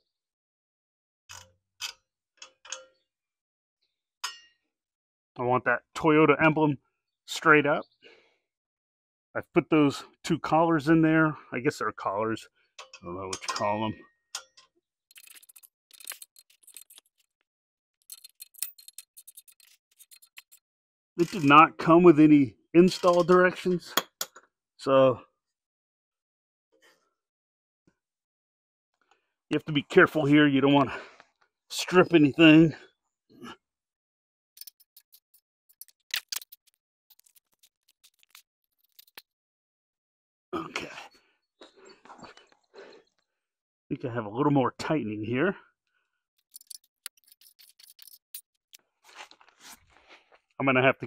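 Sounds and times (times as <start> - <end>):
metallic clicks and scrapes: 14.4 - 17.4, 18.0 - 20.6, 21.2 - 21.6, 22.9 - 24.4, 34.6 - 39.3, 46.4 - 49.9
sharp metallic clicks: 34.6 - 39.2, 46.4 - 48.8.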